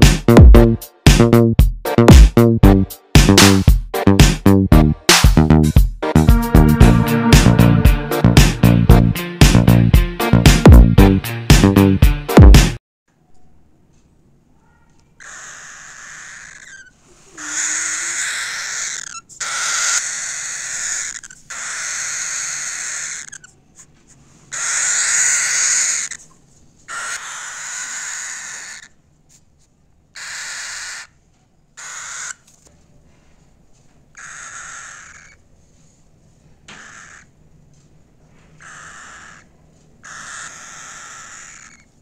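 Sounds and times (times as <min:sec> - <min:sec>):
bird chick raspy hissing calls: 0:15.2 - 0:29.0, 0:30.1 - 0:31.2, 0:31.8 - 0:32.5, 0:34.2 - 0:35.4, 0:36.8 - 0:37.3, 0:38.6 - 0:42.0.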